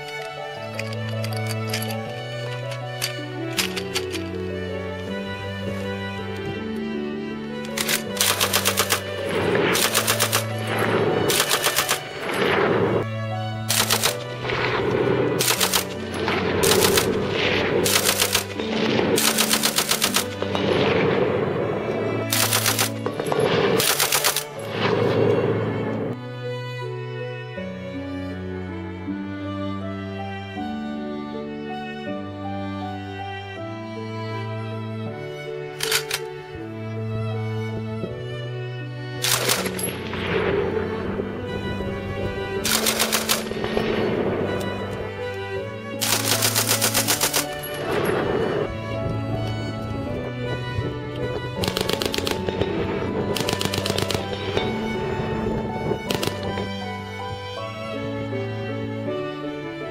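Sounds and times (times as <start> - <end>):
orchestral music: 0.0 - 59.9
machine gun bursts: 7.8 - 9.1, 9.7 - 12.3, 13.7 - 14.2, 15.4 - 16.0, 16.6 - 17.1, 17.8 - 18.6, 19.2 - 20.4, 22.3 - 23.2, 23.8 - 24.6, 39.2 - 39.8, 42.6 - 43.5, 46.0 - 47.7, 51.6 - 52.4, 53.4 - 54.3.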